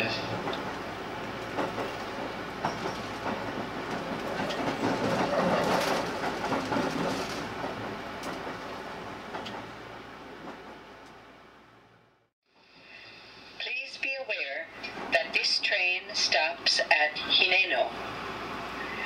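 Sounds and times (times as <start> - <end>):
rail joint clicks: 0.0 - 11.2
train wheels rumbling on rails: 0.0 - 11.2.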